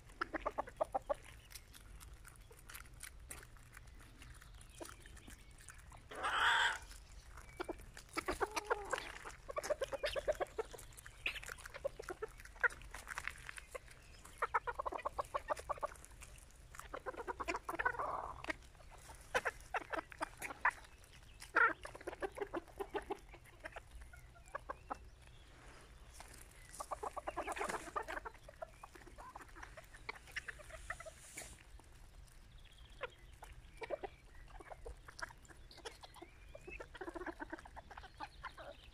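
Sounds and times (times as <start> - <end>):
chickens clucking: 0.0 - 38.9
loud chicken call: 6.1 - 6.9.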